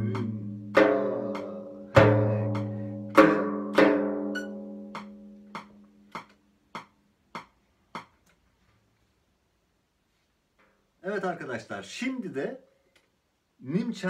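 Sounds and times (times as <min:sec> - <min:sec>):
frame drum deep strokes: 0:00.0 - 0:04.0.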